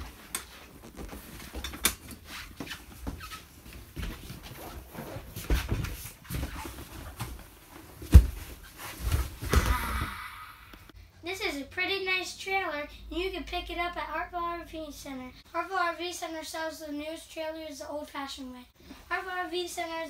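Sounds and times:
sofa cushions rustling and squeaking: 0.0 - 10.1.

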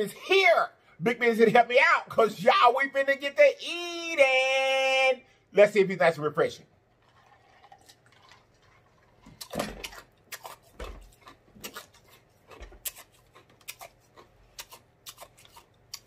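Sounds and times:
man drinking from a mug: 6.9 - 9.9.

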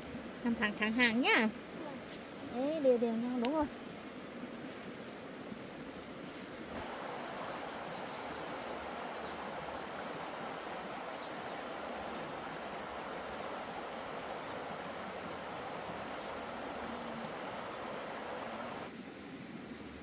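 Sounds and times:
steady rushing noise: 4.4 - 20.0.

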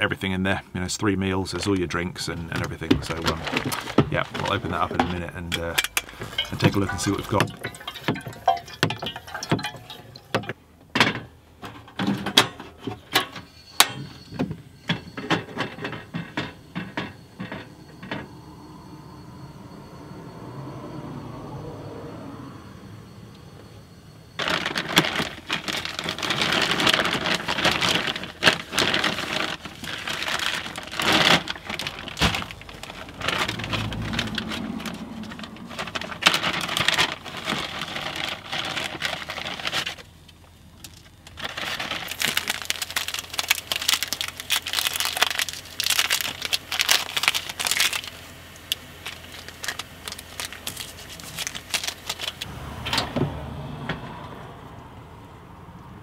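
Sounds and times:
plastic packaging crinkling: 2.5 - 10.5, 24.4 - 52.5.

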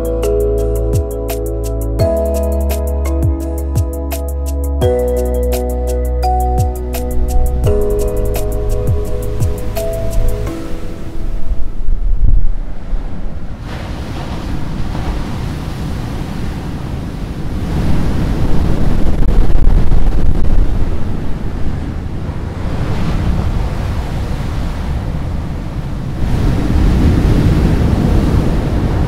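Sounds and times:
low rushing rumble: 6.7 - 13.7
waves breaking on beach: 12.6 - 29.0.

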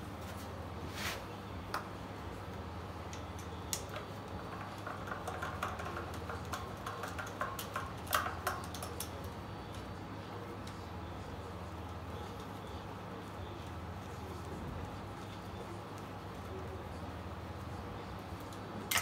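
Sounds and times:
steady low hum: 0.0 - 19.0
small metallic clicks and taps: 3.1 - 9.9.

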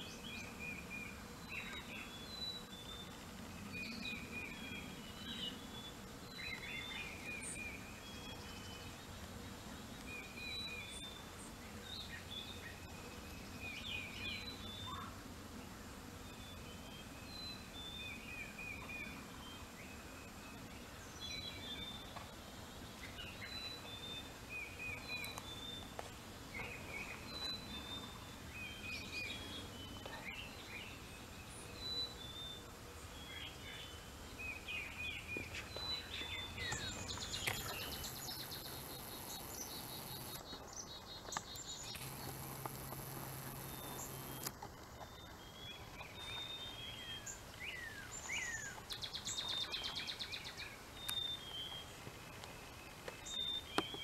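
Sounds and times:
faint outdoor ambience: 0.0 - 54.0
steady high hiss: 30.5 - 40.5, 41.6 - 44.9
songbirds chirping and singing: 33.1 - 54.0.

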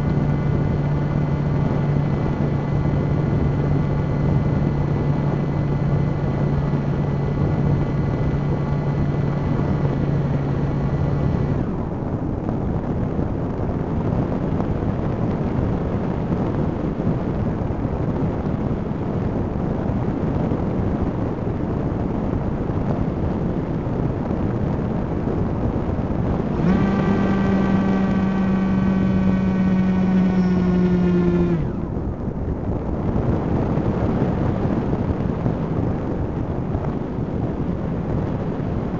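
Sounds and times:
drone propellers whining: 0.0 - 11.9, 26.3 - 32.0
wind on microphone: 0.0 - 38.9.

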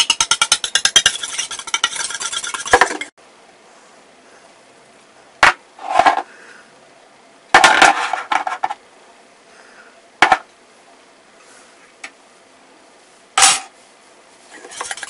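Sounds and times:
shaker tapping metal bowl: 0.0 - 3.1, 14.7 - 15.0.

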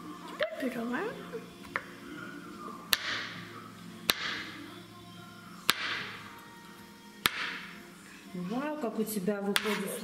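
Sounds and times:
background music: 0.0 - 10.0
knife chopping on wooden board: 7.3 - 7.6, 9.6 - 9.9.

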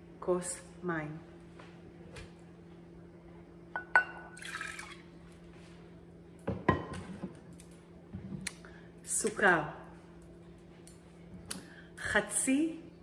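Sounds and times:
glass clinking with ring: 3.8 - 4.5.

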